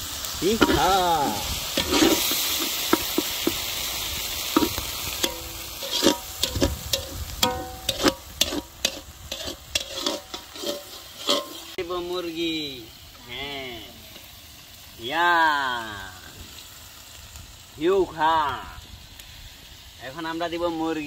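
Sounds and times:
spice paste sizzling in oil: 0.0s - 21.0s
metal spatula scraping a pan: 0.4s - 11.8s.

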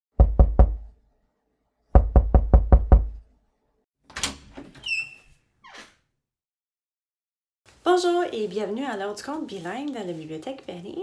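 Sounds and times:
knocking on a door: 0.2s - 0.8s, 2.0s - 3.2s.

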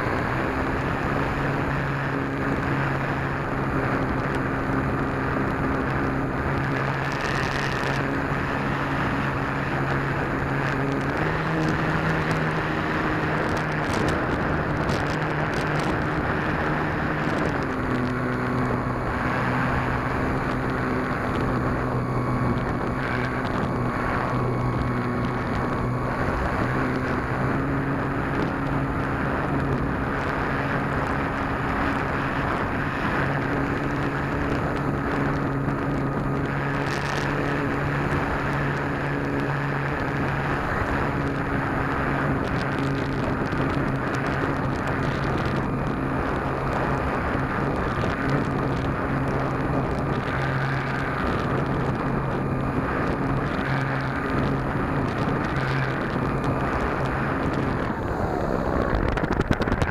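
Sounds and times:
electric propeller hum: 0.0s - 59.9s
wind rushing over microphone: 0.0s - 59.9s.

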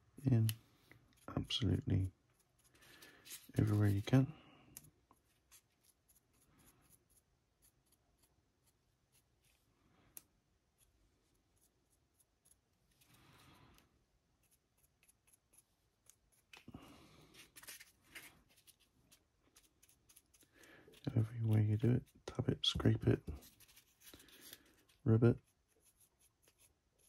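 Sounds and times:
stiff brush scratching: 1.1s - 4.2s.

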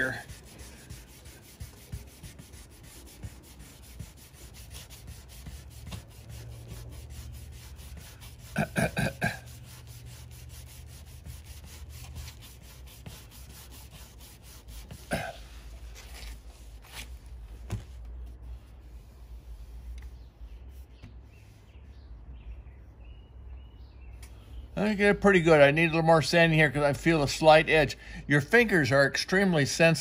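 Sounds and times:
sandpaper rubbing on metal: 0.0s - 17.3s, 18.4s - 21.9s
person making throat sounds: 8.5s - 9.4s, 15.0s - 15.6s.

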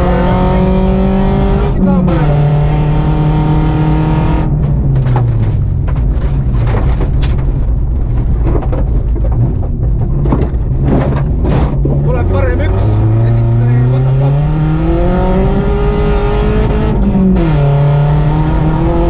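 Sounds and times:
car engine revving: 0.0s - 19.0s
gravel clattering against underbody: 4.5s - 12.1s.

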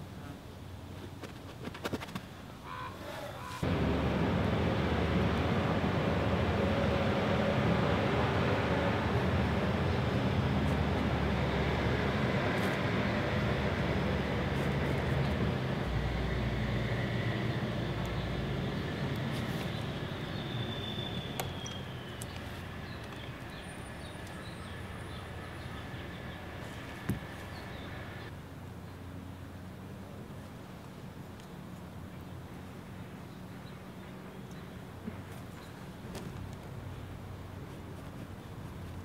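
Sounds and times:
vehicle engine humming: 3.5s - 28.6s.

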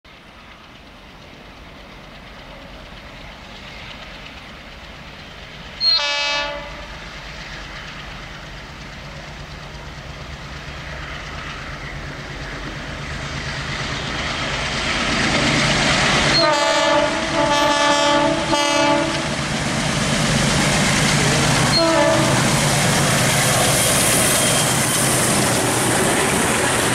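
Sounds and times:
locomotive engine drone: 0.1s - 26.9s
locomotive horn blasts: 5.8s - 7.0s, 16.3s - 19.4s, 21.7s - 22.5s.

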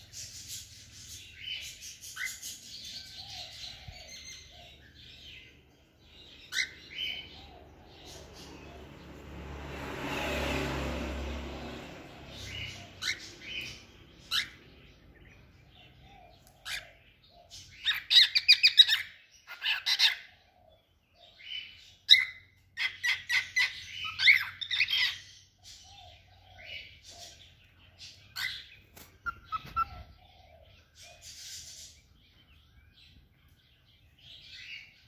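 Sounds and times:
cockatiel chirping: 6.5s - 7.2s, 12.6s - 14.6s, 17.8s - 20.3s, 28.3s - 30.2s.

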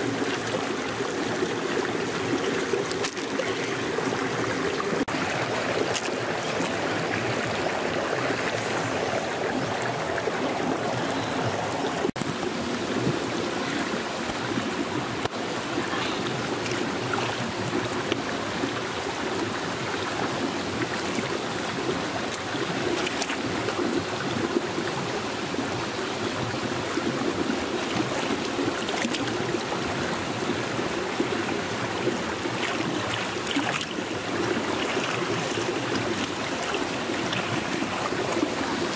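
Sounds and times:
stream running over rocks: 0.0s - 38.9s
hands splashing water: 5.0s - 7.4s.

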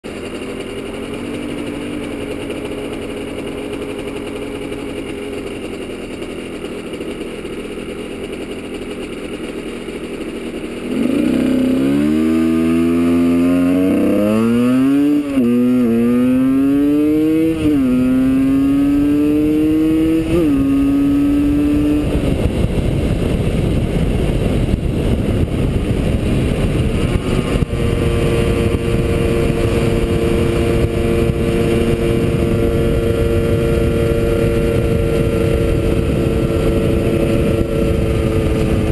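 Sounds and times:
motorcycle engine revving: 0.0s - 38.9s
wind rush on microphone: 18.8s - 38.9s.

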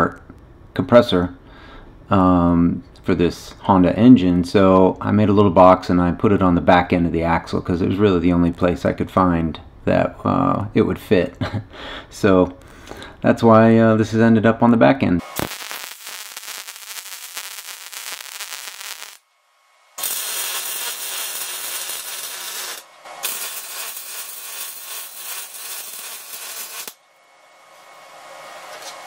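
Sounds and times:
welder arc crackling: 15.2s - 19.3s, 20.0s - 27.0s.

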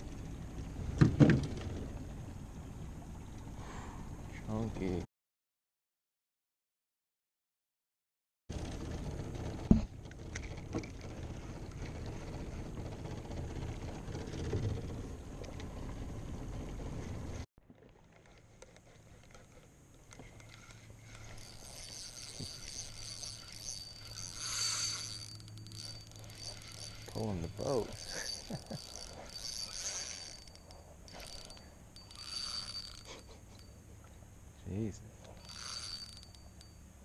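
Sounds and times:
fishing reel cranking: 18.6s - 33.8s, 35.2s - 37.0s.

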